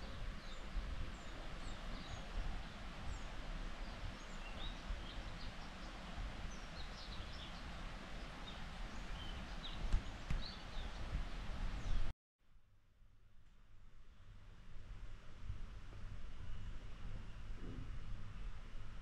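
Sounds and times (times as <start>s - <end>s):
birds chirping: 0.0s - 12.1s.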